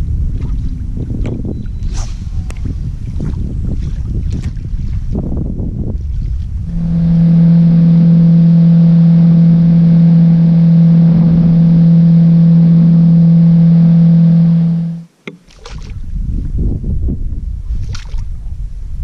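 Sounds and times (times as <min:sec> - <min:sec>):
rush of wind and water: 0:00.0 - 0:07.6, 0:15.1 - 0:19.0
outboard motor running: 0:06.4 - 0:15.1.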